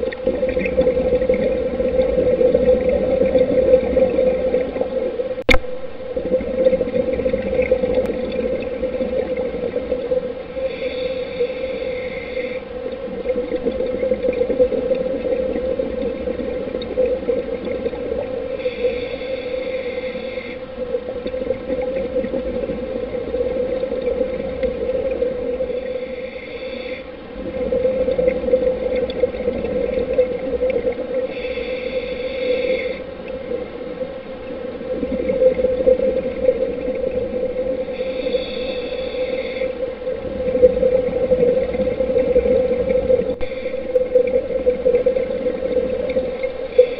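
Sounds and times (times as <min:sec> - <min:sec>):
low underwater drone: 0:00.0 - 0:46.9
muffled watery rush: 0:00.0 - 0:46.9
diver breathing through regulator: 0:10.6 - 0:12.8, 0:18.5 - 0:20.8, 0:25.7 - 0:27.2, 0:31.2 - 0:33.2, 0:37.8 - 0:40.0, 0:43.4 - 0:44.1.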